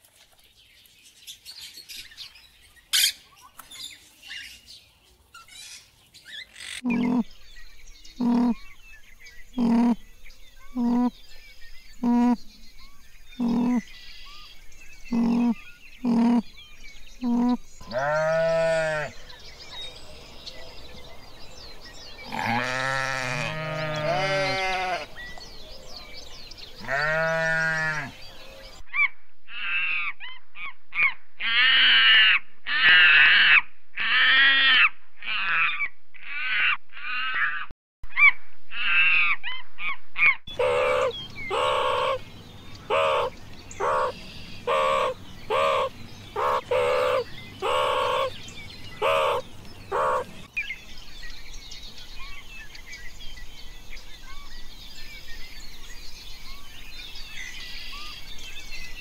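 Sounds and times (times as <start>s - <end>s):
faint birdsong: 0.0s - 28.8s, 39.2s - 59.0s
high animal calls: 6.5s - 7.3s, 8.2s - 8.6s, 9.6s - 10.0s, 10.7s - 11.2s, 12.0s - 12.4s, 13.4s - 13.9s, 15.1s - 16.5s, 17.2s - 19.2s, 22.3s - 25.1s, 40.5s - 42.2s, 42.8s - 48.4s, 49.0s - 50.5s
lower animal calls: 6.6s - 7.3s, 8.2s - 8.7s, 9.6s - 10.0s, 10.7s - 11.2s, 12.0s - 12.4s, 13.4s - 13.9s, 15.1s - 16.5s, 17.2s - 19.2s, 40.5s - 42.2s, 42.8s - 48.4s, 49.0s - 50.5s.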